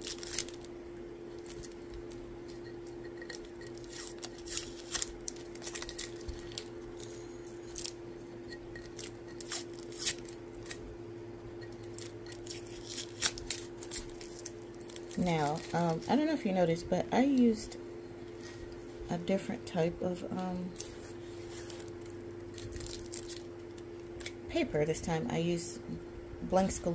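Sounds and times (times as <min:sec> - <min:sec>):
tape peeling crackles and clicks: 0:00.0 - 0:00.7, 0:01.3 - 0:08.0, 0:08.8 - 0:10.8, 0:11.6 - 0:16.2, 0:20.7 - 0:24.4
steady low hum: 0:00.0 - 0:26.9.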